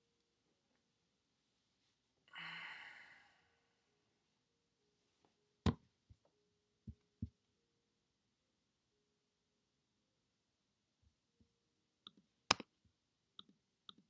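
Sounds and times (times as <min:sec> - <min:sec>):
person sighing: 0:02.3 - 0:03.8.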